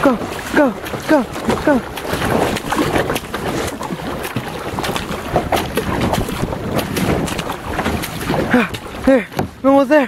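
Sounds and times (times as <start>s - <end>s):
wind buffeting microphone: 0.0s - 9.9s
paddle splashing in water: 0.0s - 10.0s.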